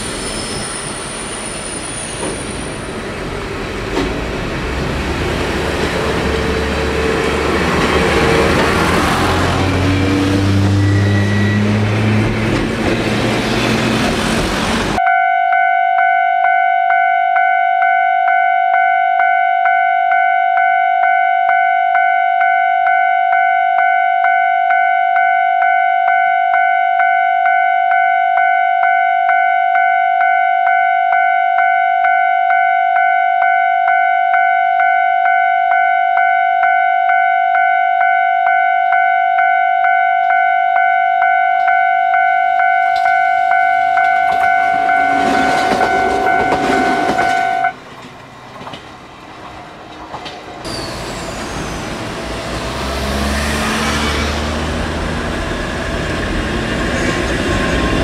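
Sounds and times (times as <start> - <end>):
street traffic: 0.0 - 15.3, 35.2 - 58.0
tram passing: 0.0 - 17.0, 17.8 - 58.0
level crossing alarm ringing: 6.1 - 12.9, 15.0 - 47.8.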